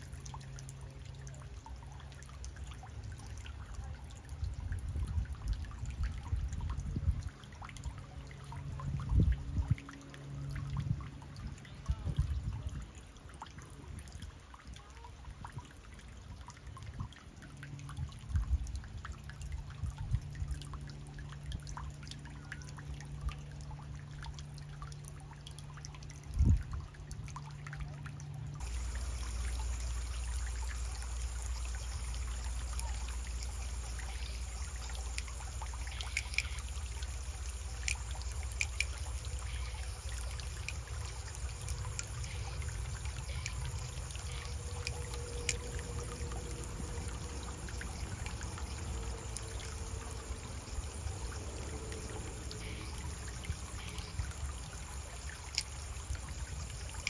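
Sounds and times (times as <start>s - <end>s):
shallow water trickling: 0.0s - 57.0s
small water splashes: 0.0s - 57.0s
low rumble: 28.6s - 53.8s.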